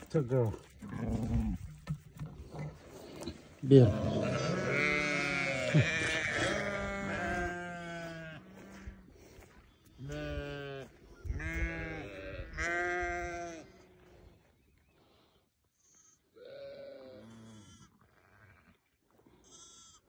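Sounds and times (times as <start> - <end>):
sheep bleating: 3.6 - 8.8, 10.0 - 14.0, 15.9 - 18.8, 19.4 - 20.0.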